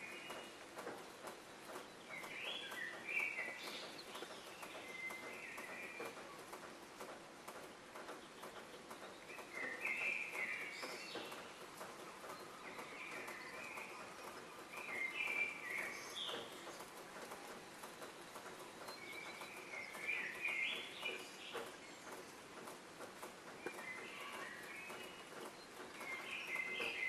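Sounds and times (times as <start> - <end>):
faint clicks: 0.0 - 27.0
small birds chirping: 0.0 - 27.0.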